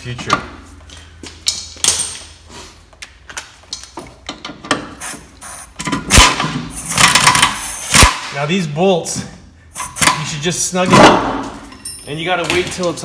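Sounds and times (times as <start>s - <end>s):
pneumatic air ratchet: 4.8s - 8.2s, 9.7s - 10.3s
metal bolts and tools clanking: 10.9s - 13.0s.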